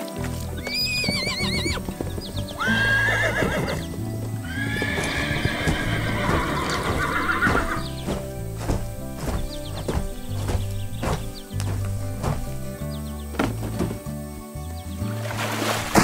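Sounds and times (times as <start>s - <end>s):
hoofbeats clip-clop: 0.0s - 14.9s
background music: 0.0s - 16.0s
horse whinnying: 0.5s - 8.0s.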